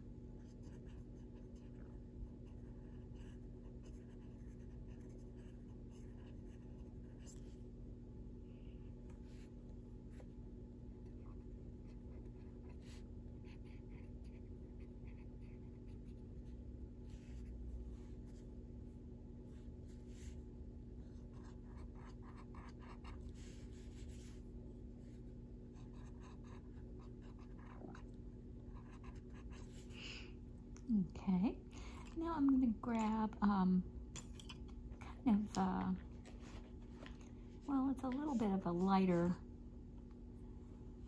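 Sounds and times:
steady low hum: 0.0 - 41.0
colored pencil scratching on paper: 0.4 - 7.4, 11.8 - 16.2, 21.1 - 24.4, 25.8 - 28.0, 28.7 - 30.0.

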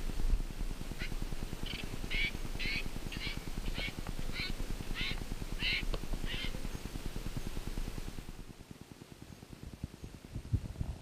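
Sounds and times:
bird calling: 0.9 - 7.7.

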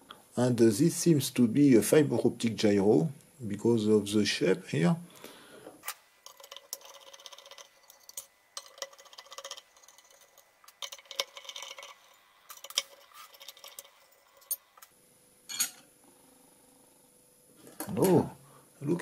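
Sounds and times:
metal plate clinking: 6.2 - 14.6.

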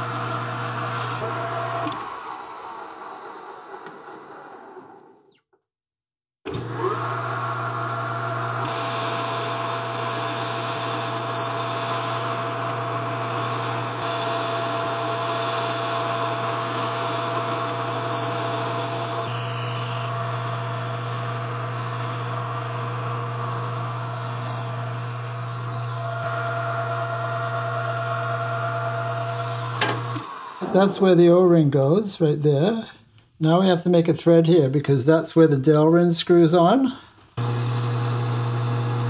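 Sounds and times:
metal lathe cutting: 0.0 - 4.9, 6.5 - 30.8, 37.4 - 39.0.

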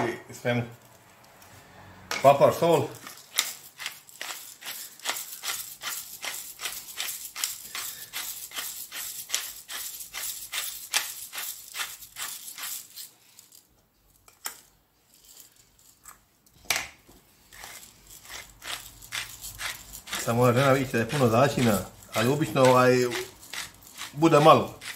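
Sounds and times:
spice mill ratcheting rattle: 2.6 - 13.6, 17.5 - 24.9.

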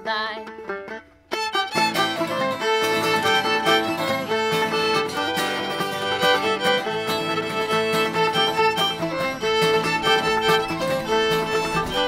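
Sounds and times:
acoustic guitar: 0.0 - 12.0
banjo: 0.0 - 12.0
fiddle melody: 0.0 - 12.0.

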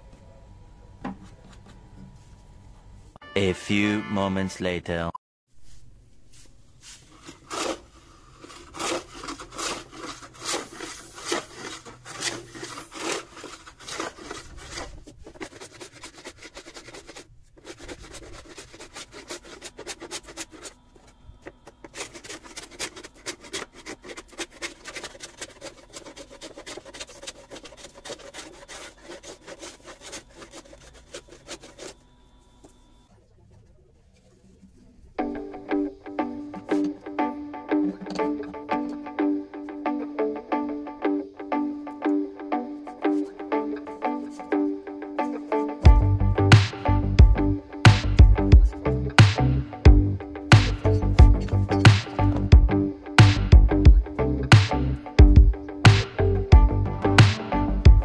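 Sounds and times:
hand tool scraping wood: 6.9 - 32.0, 50.5 - 52.6.

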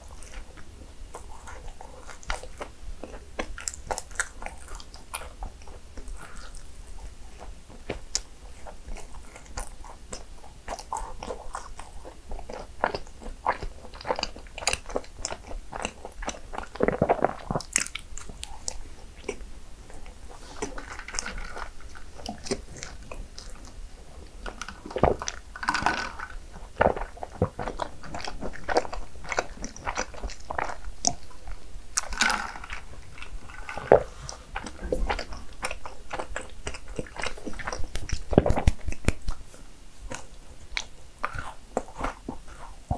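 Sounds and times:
person chewing: 0.0 - 42.9.

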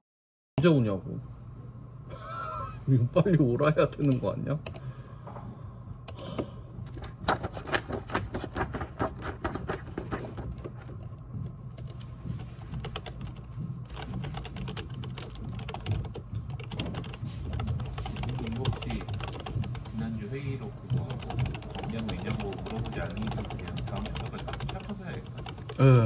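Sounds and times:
typing on computer keyboard: 6.1 - 11.0, 11.8 - 20.1, 20.8 - 25.9.

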